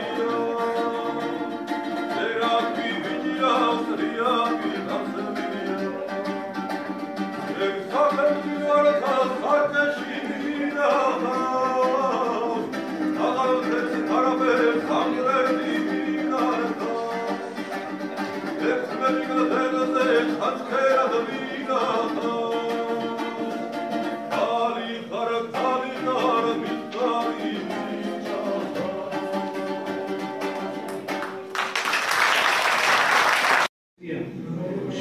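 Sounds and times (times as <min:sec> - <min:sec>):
acoustic guitar: 0:00.0 - 0:31.8
audience applause: 0:30.9 - 0:33.7.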